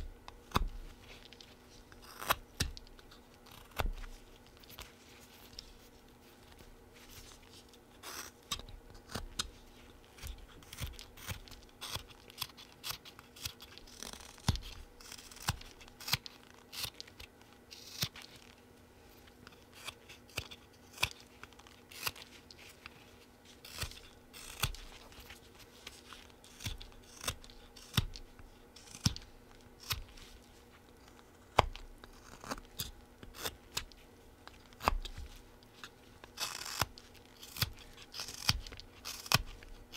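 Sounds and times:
knife cutting wood: 36.4s - 39.6s.

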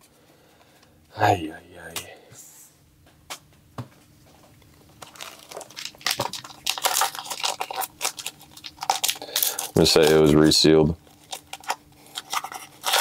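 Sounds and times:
foil wrapper crinkling: 4.8s - 13.0s.

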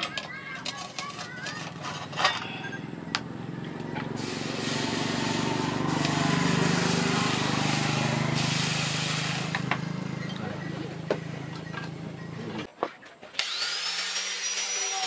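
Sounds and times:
hot metal sizzling in liquid: 4.2s - 9.6s.

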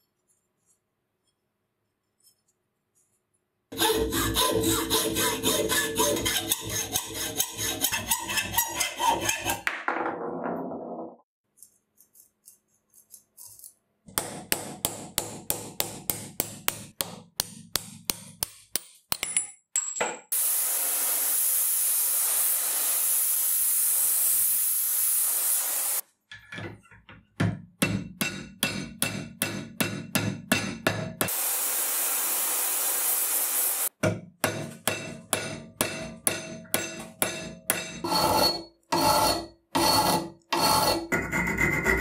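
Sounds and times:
hacksaw strokes: 3.7s - 9.7s, 37.8s - 42.0s.

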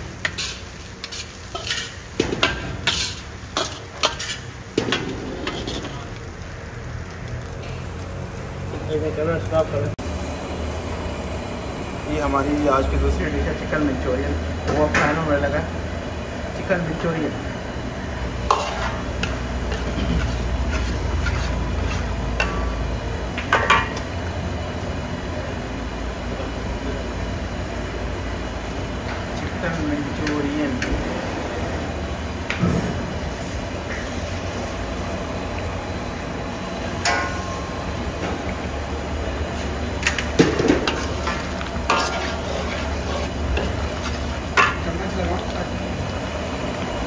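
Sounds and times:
sauce bubbling and sizzling: 0.0s - 12.1s, 12.9s - 26.4s, 31.5s - 47.0s
metal ladle scraping wok: 0.2s - 6.1s, 18.3s - 22.8s, 39.5s - 45.7s.

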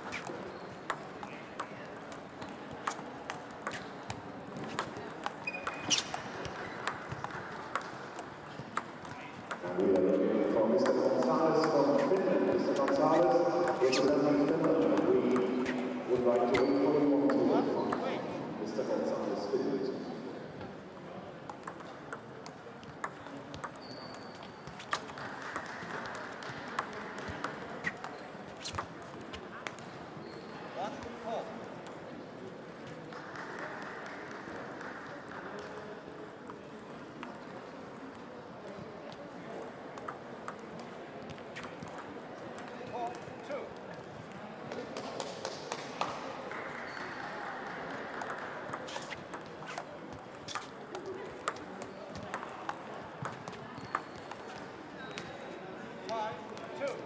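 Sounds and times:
distant ping pong clicks: 0.0s - 18.2s, 21.4s - 30.5s, 39.5s - 44.1s, 44.7s - 55.4s
background murmur: 0.0s - 57.0s
table tennis ball clicking: 0.8s - 9.6s, 21.5s - 29.8s, 41.6s - 43.3s, 48.1s - 54.6s.

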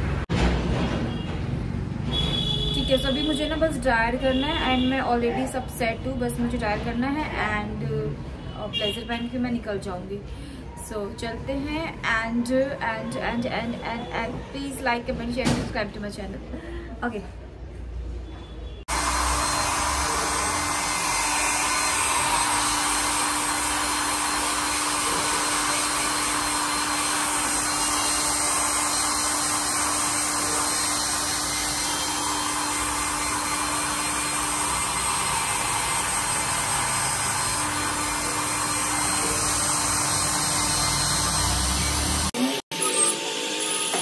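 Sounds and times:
hair dryer blowing: 18.9s - 44.0s.

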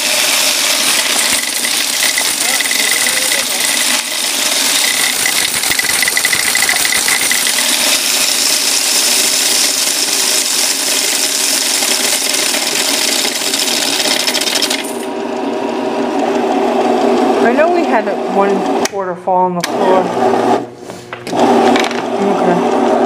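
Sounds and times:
coin counter clattering: 0.3s - 15.1s.

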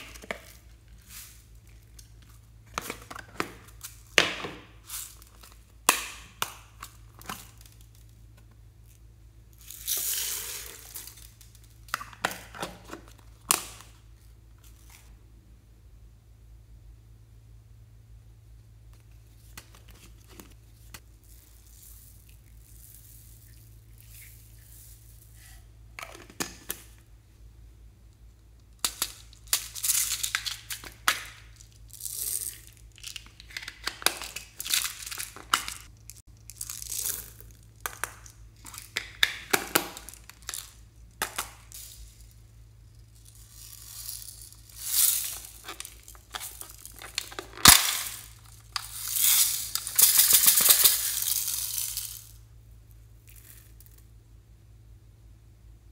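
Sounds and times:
slime beads crackling and crunching: 28.8s - 52.4s.

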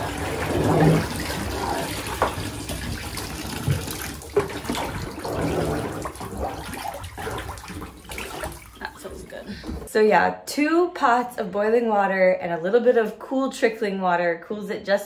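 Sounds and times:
bath water swishing and splashing: 0.0s - 9.9s.

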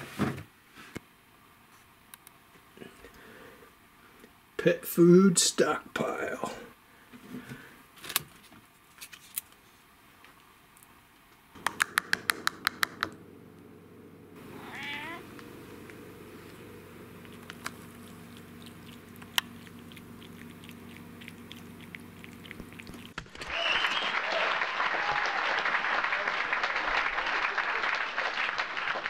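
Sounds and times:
sharp clicks: 11.6s - 13.2s
cat meowing: 14.4s - 15.3s
cat eating from a bowl: 14.4s - 23.2s.

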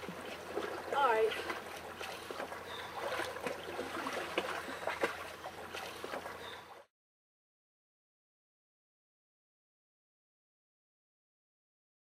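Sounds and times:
water sloshing around wading person: 0.0s - 6.9s.

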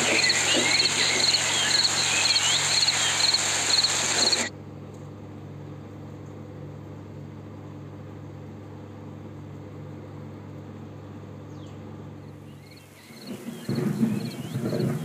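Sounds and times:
faint hiss: 0.0s - 4.5s
low electrical hum: 0.0s - 15.0s.

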